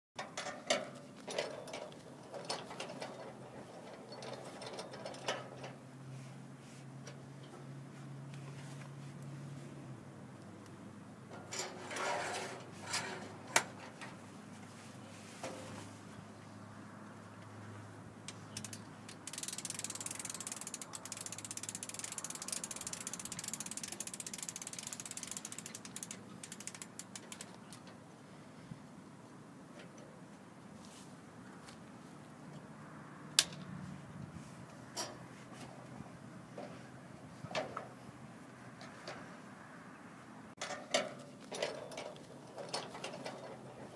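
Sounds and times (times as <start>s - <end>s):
umbrella crank ratchet clicking: 18.3s - 27.9s.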